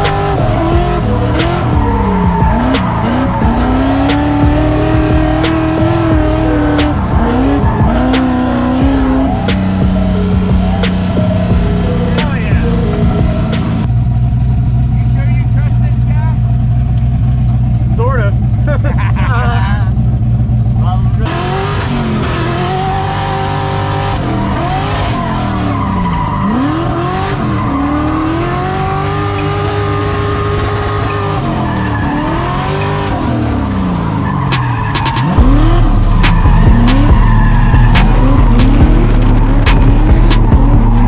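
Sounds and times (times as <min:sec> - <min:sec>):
car engine revving hard: 0:00.0 - 0:13.9, 0:21.2 - 0:41.0
deep drone: 0:00.0 - 0:25.7, 0:35.2 - 0:41.0.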